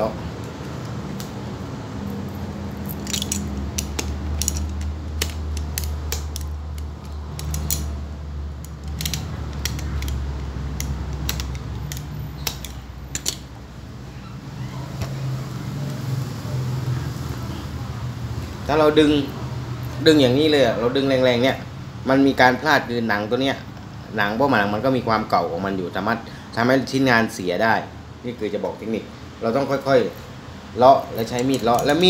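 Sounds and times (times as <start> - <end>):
sharp clicks of pincers and blade: 2.8 - 8.0, 8.6 - 13.5.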